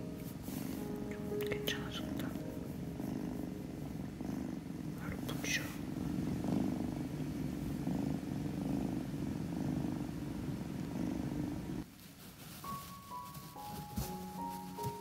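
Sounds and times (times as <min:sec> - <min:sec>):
kitten purring: 0:00.2 - 0:11.9.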